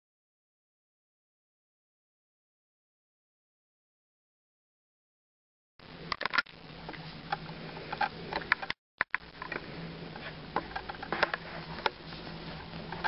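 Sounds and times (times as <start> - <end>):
low steady hum: 5.8 - 13.0.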